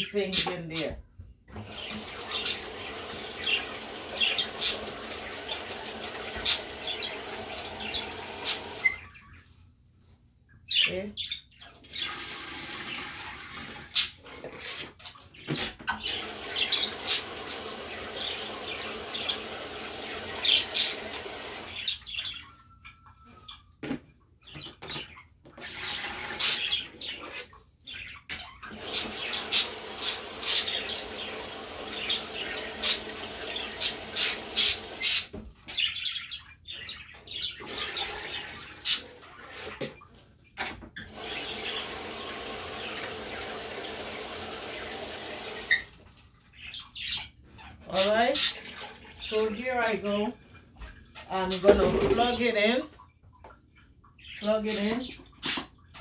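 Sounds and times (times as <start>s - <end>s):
knocks and clatter of dishes: 51.7s - 52.4s.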